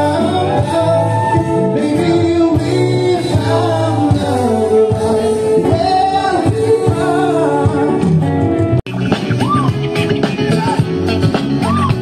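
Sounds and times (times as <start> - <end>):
person singing into microphone: 0.0 - 8.3.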